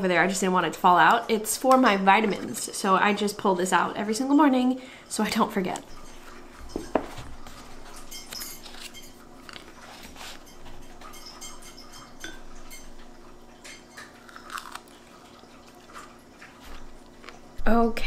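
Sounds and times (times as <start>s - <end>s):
faint steady hum: 0.0s - 18.0s
book pages rustling: 8.3s - 10.4s.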